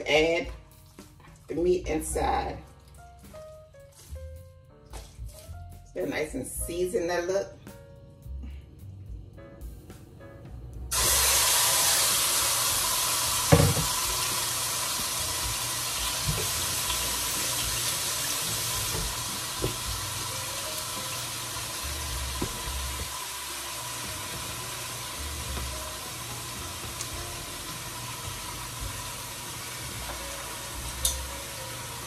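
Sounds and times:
meat sizzling in a pot: 10.9s - 32.0s.

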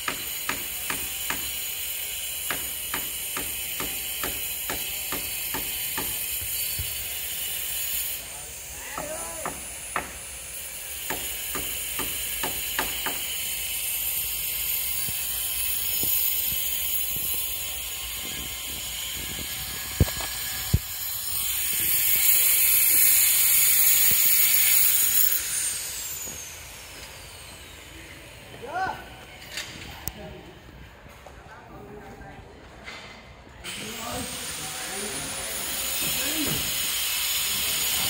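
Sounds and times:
hammer striking steel: 0.0s - 1.7s, 2.4s - 6.6s, 8.9s - 10.3s, 11.0s - 13.4s.

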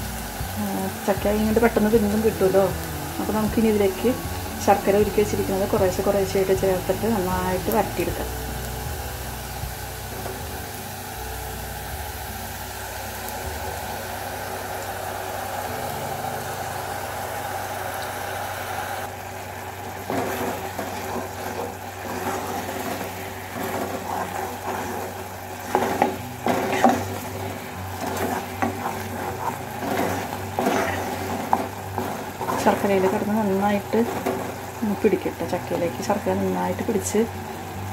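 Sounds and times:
food sizzling in a pot: 0.0s - 37.9s
syrup bubbling: 12.2s - 33.0s
wooden spatula scraping pot: 20.0s - 36.2s.

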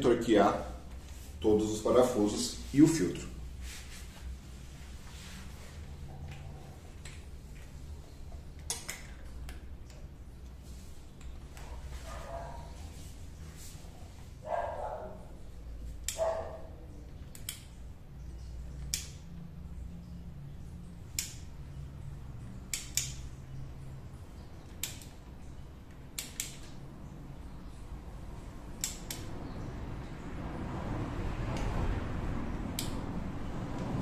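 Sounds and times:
dog barking: 12.0s - 12.8s, 14.4s - 15.4s, 16.1s - 16.8s.

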